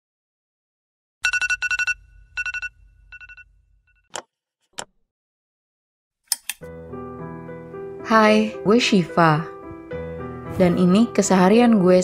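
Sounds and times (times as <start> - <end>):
trilling electronic ringtone: 1.2 - 3.6.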